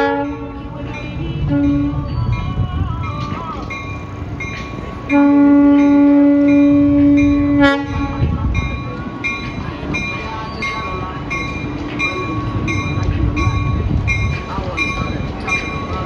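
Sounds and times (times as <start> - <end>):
locomotive horn blast: 0.0 - 0.5, 5.1 - 8.3
locomotive bell ringing: 0.0 - 16.0
low rumble of train: 0.0 - 16.0.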